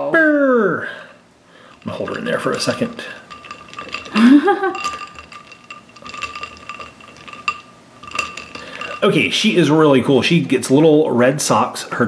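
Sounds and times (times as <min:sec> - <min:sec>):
ice cubes clinking in glass bowl: 0:01.6 - 0:10.2.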